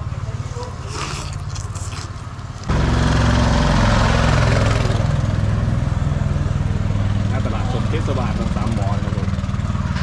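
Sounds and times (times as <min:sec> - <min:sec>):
vehicle engine idling: 0:02.2 - 0:10.0.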